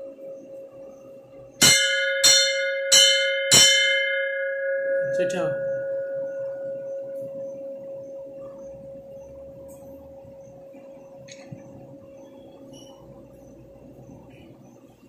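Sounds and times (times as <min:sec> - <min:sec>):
large bell ringing: 0:01.6 - 0:10.7.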